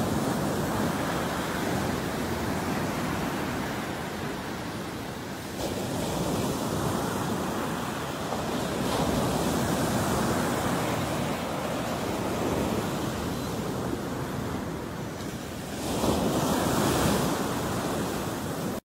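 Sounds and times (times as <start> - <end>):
ocean surf breaking on beach: 0.0 - 18.8.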